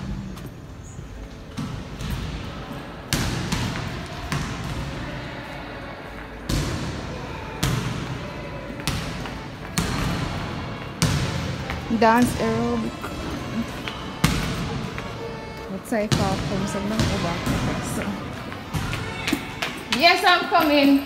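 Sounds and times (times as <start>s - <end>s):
basketball bouncing on hardwood: 14.2s - 20.1s.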